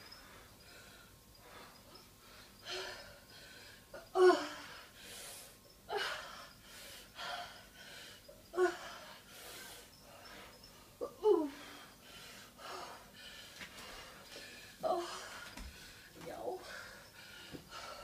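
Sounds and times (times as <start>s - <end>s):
woman breathing hard and gasping: 0.0s - 18.0s.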